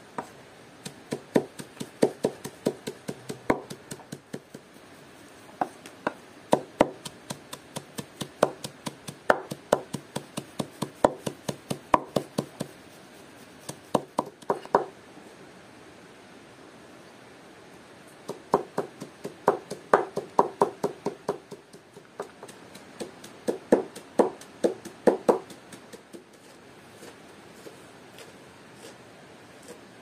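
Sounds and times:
knife chopping on cutting board: 0.8 - 4.6, 6.5 - 12.7.

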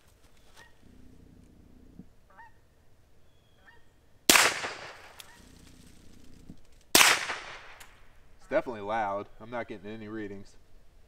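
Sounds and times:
pistol shots: 4.3 - 5.3, 6.9 - 8.1.

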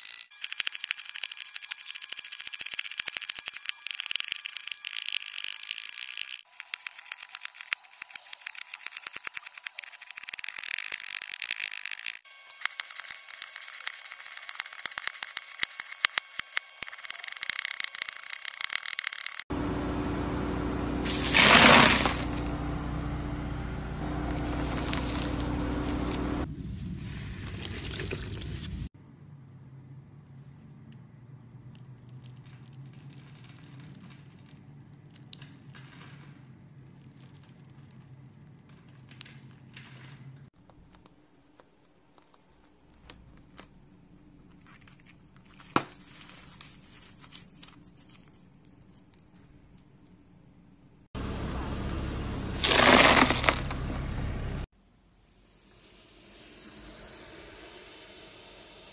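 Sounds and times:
car engine idling: 19.5 - 26.5, 51.2 - 54.7
foam crackling: 19.6 - 28.8, 51.2 - 54.6
tyre crunching foam: 21.0 - 22.6, 24.0 - 26.5, 52.6 - 54.0
plastic film crinkling: 24.3 - 26.4, 52.6 - 53.8.

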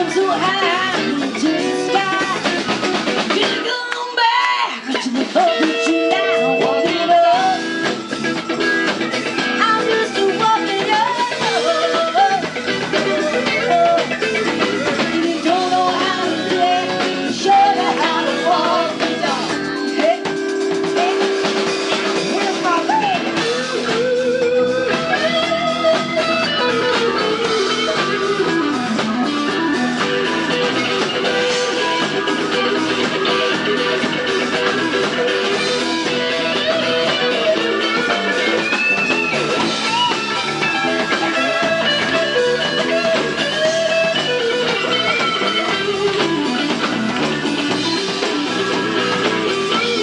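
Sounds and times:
woman singing: 0.0 - 2.6, 3.3 - 7.8, 9.6 - 14.2, 14.9 - 21.4, 22.2 - 23.4
bass: 0.0 - 50.0
drum kit: 0.0 - 50.0
electric guitar: 0.0 - 50.0.

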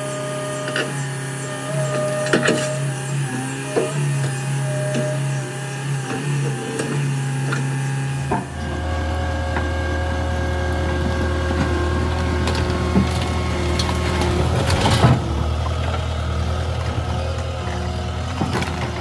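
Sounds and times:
skid steer engine running: 0.0 - 19.0
wood cracking and splintering: 8.4 - 17.0.

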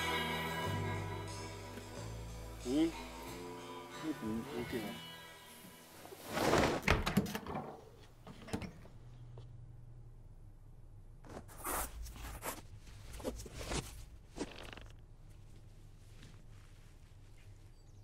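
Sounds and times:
boot being laced: 11.2 - 15.6
clothes rustling: 11.2 - 18.0.

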